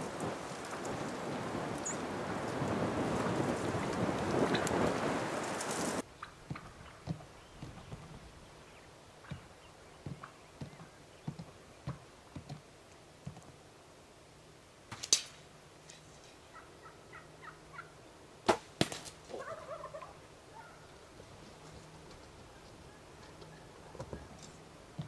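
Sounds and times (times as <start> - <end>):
wild turkeys calling: 5.5 - 11.4, 16.4 - 18.1, 19.3 - 24.7
loud sharp cracks: 14.9 - 15.4.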